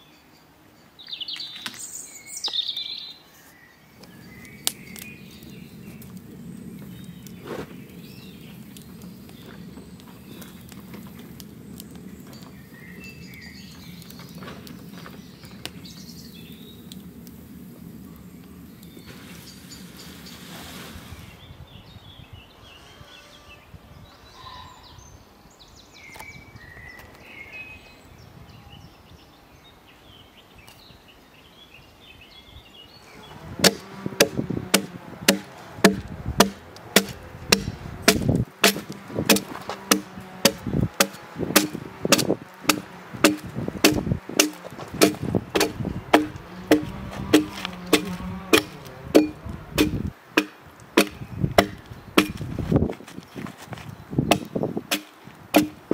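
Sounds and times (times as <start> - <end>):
faint bird chirps: 18.1 - 33.4
axe chopping log: 33.6 - 52.6, 54.3 - 55.9.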